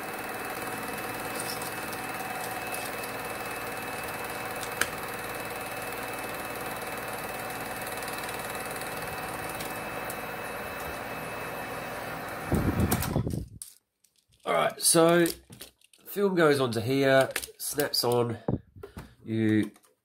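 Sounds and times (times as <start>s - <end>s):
projector motor hum and whir: 0.0s - 13.4s.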